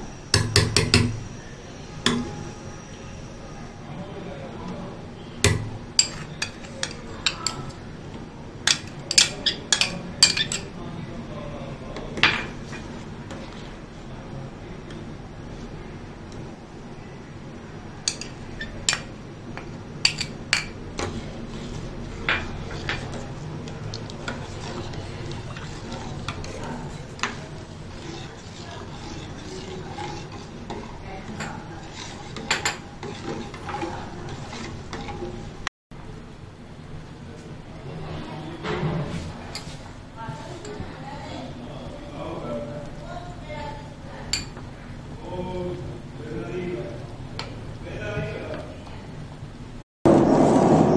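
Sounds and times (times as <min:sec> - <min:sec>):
spoon stirring thick sauce: 0:05.6 - 0:07.8, 0:08.7 - 0:10.8, 0:18.1 - 0:35.6
spoon clinking against glass bowl: 0:08.7 - 0:10.7.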